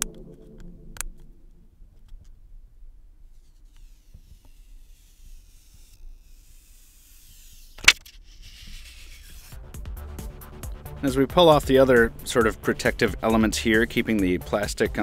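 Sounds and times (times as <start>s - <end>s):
film peeling hiss: 3.3s - 9.8s.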